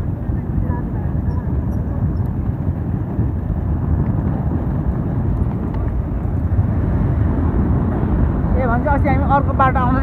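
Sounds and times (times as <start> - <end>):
wind rumble on microphone: 0.0 - 10.0.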